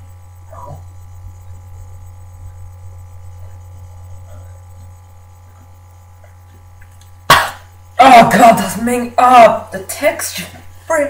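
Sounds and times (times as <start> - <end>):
faint small noises: 0.0 - 11.0
low electrical hum: 0.0 - 11.0.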